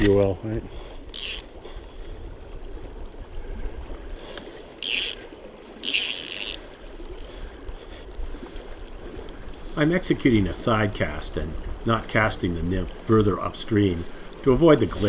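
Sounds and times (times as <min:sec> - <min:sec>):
fly line swishing: 0:04.7 - 0:06.6.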